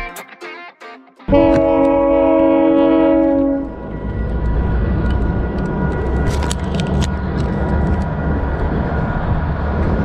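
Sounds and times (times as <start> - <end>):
heavy vehicle rumbling: 1.3 - 10.0.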